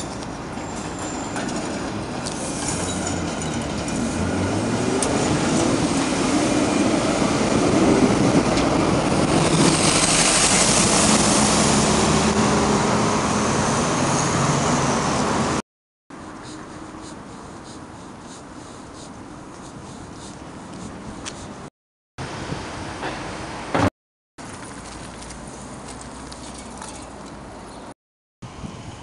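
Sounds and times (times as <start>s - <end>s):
tram passing on rails: 0.0s - 15.6s, 22.2s - 24.7s.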